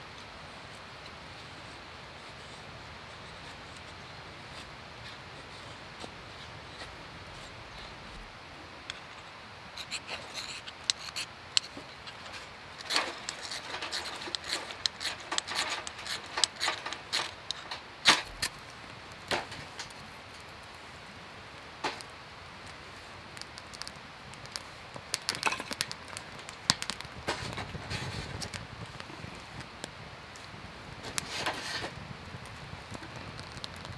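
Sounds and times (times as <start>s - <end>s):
hard objects clicking and knocking: 9.8s - 18.6s, 19.2s - 20.0s, 23.6s - 28.7s.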